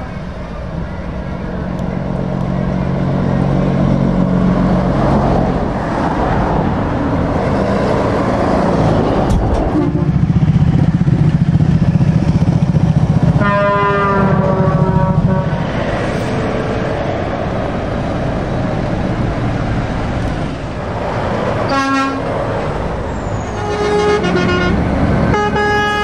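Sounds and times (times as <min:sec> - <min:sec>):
trucks driving past: 0:00.0 - 0:26.0
truck air horn blast: 0:09.7 - 0:10.3, 0:13.4 - 0:15.7, 0:21.7 - 0:22.3, 0:23.2 - 0:26.0.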